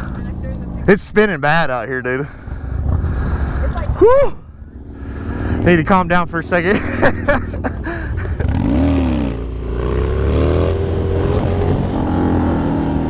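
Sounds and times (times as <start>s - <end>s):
motorcycle engine revving: 2.2s - 13.0s
motorcycle pulling away: 4.7s - 13.0s.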